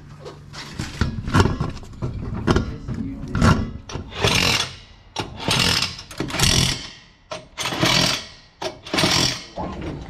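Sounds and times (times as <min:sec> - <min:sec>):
impact wrench bursts: 0:03.9 - 0:09.6.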